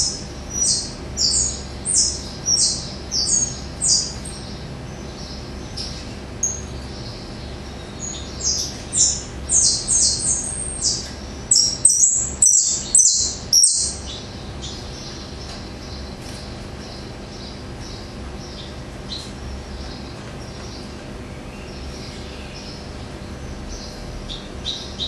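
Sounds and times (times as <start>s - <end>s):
songbird singing: 0.0s - 25.0s.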